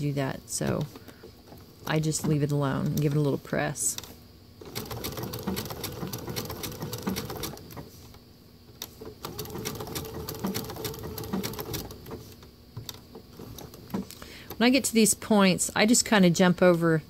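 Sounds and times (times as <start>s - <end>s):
sewing machine motor hum: 4.6s - 7.9s, 8.9s - 14.0s.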